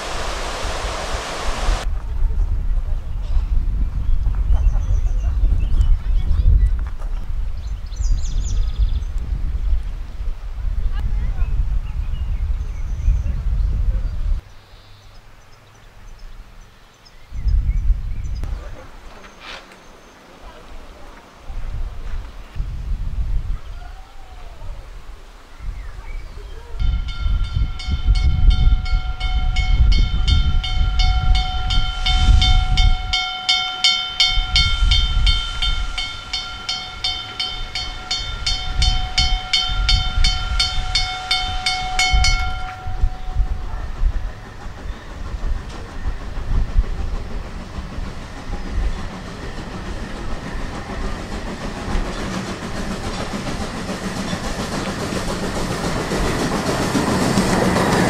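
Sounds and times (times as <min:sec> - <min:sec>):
steam train running: 0:26.1 - 0:58.0
pulsing pitched signal: 0:26.8 - 0:46.4
low rumble: 0:26.8 - 0:58.0.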